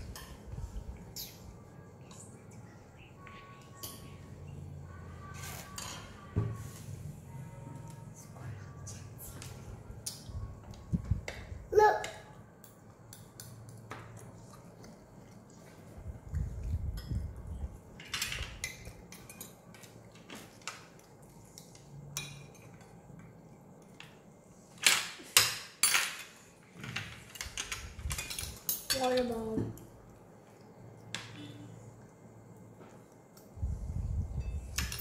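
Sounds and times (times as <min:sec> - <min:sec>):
cutlery clinking on plates: 0:05.3 - 0:06.5, 0:18.0 - 0:23.0.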